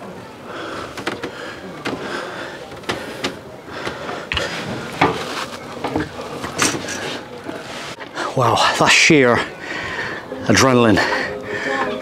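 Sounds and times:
footsteps on stairs: 2.7s - 7.6s.

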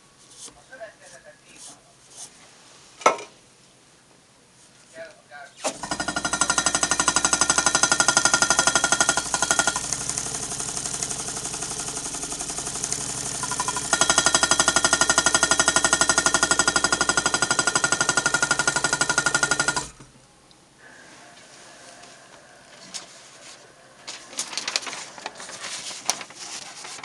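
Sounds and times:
engine mechanism clattering: 5.7s - 20.1s.

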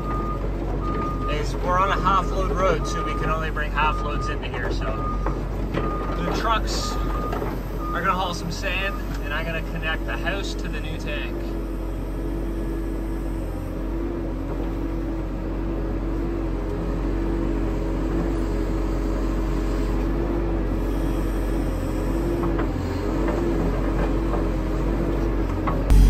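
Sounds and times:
diesel engine running: 0.0s - 26.0s
hydraulic whine: 10.7s - 15.1s, 17.6s - 26.0s.

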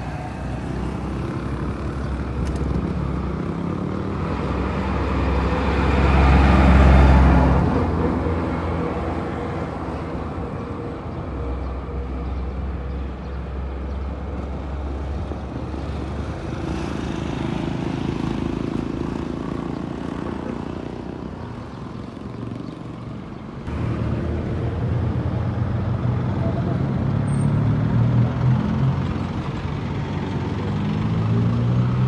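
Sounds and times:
vehicles passing: 0.0s - 32.0s
motor scooter passing: 15.6s - 22.9s.

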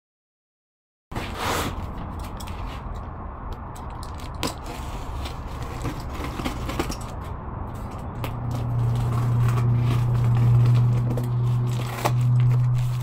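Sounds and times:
knife slitting packing tape: 8.4s - 13.0s.

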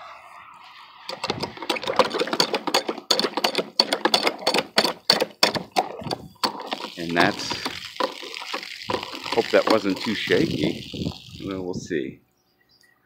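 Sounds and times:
hand pump handle clanking: 1.1s - 11.5s.

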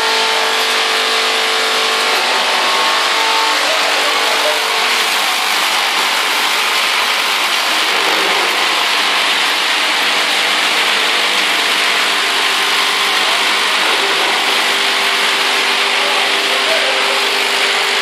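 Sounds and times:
machine hum: 0.0s - 18.0s
chips pouring into hopper: 1.4s - 18.0s.

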